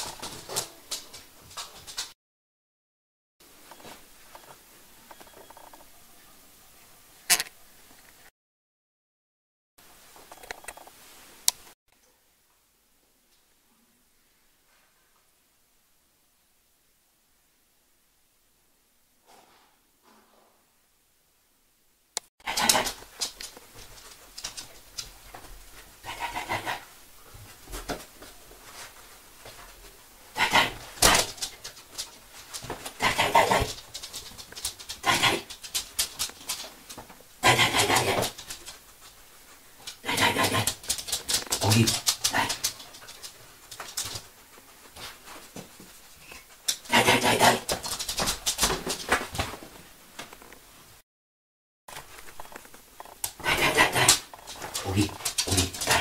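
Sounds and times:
dog panting: 22.4s - 24.9s, 26.0s - 26.9s, 37.4s - 44.4s, 46.2s - 48.5s, 53.3s - 56.0s.

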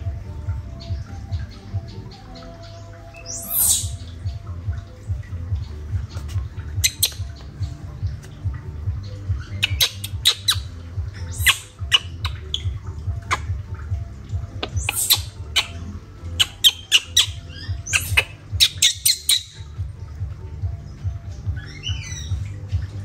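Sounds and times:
baby monkey shrieking: 3.2s - 4.0s, 6.8s - 7.2s, 9.4s - 13.5s, 14.7s - 19.6s, 21.6s - 22.4s.

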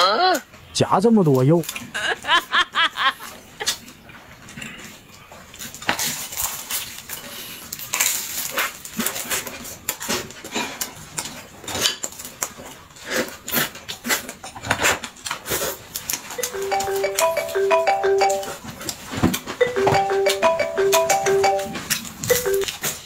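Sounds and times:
chewing: 3.6s - 16.4s.

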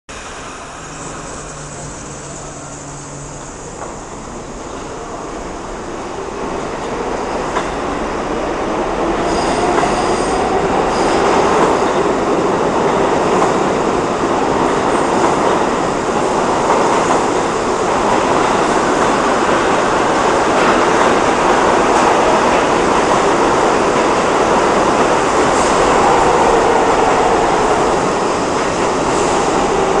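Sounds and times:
subway train wheels on rails: 0.1s - 30.0s.

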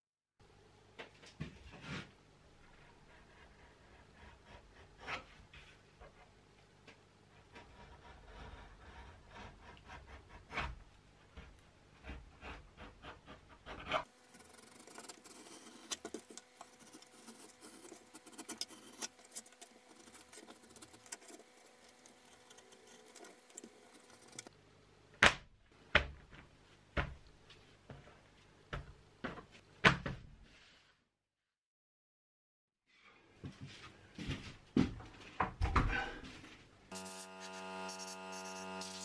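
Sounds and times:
knife scraping leather: 12.4s - 24.5s, 36.9s - 39.0s.

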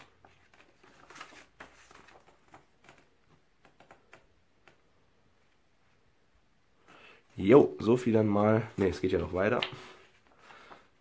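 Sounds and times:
booklet pages turning: 0.0s - 4.8s, 8.6s - 10.9s.

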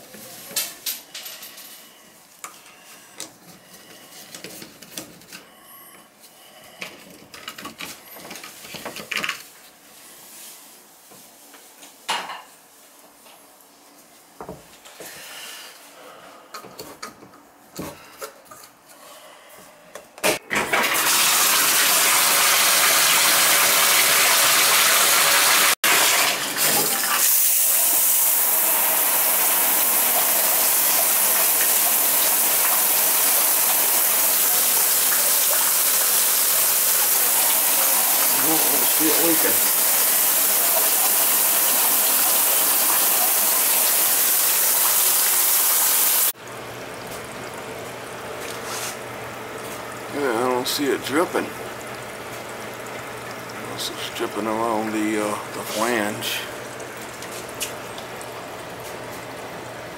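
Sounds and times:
shower water rushing: 20.7s - 46.4s.

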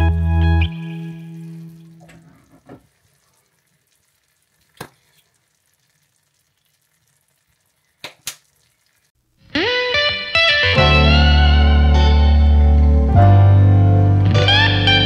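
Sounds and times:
beans sizzling in a pan: 1.1s - 9.2s.

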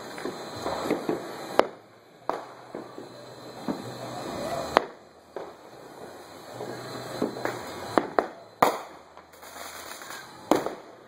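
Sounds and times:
faint pops and crackle: 0.0s - 3.9s
firecracker bangs: 0.0s - 11.0s.

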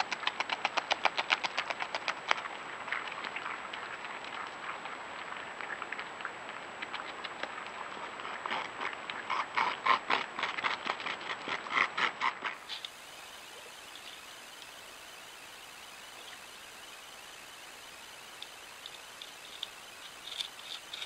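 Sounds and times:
beaver gnawing wood: 8.3s - 21.0s.

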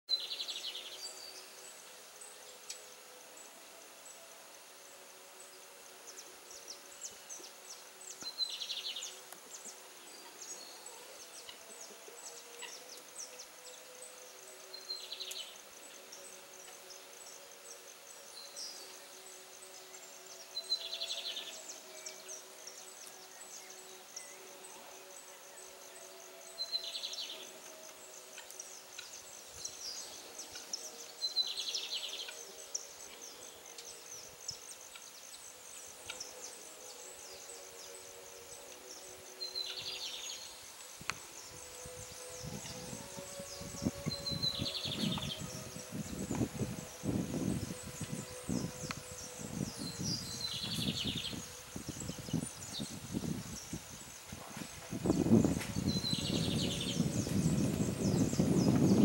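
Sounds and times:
insects chirring: 0.9s - 59.0s.

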